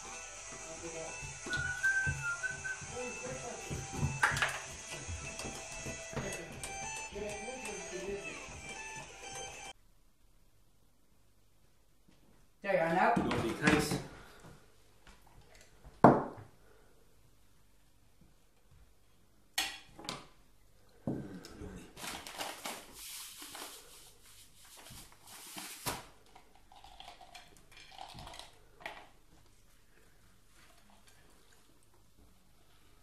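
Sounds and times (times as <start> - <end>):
paper bag rustling: 22.0 - 26.1.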